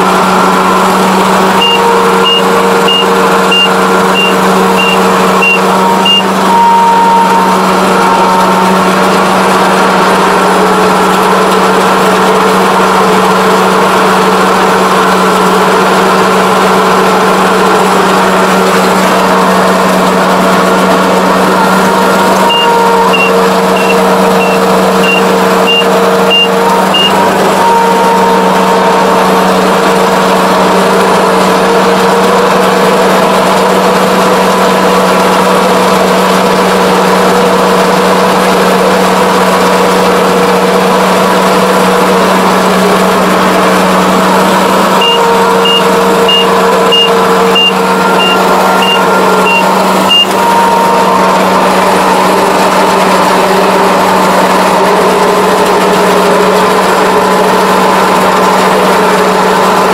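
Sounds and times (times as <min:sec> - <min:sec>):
combine engine and machinery running: 0:00.0 - 0:59.9
short high warning beeps: 0:01.6 - 0:07.6, 0:22.4 - 0:28.2, 0:45.0 - 0:50.4.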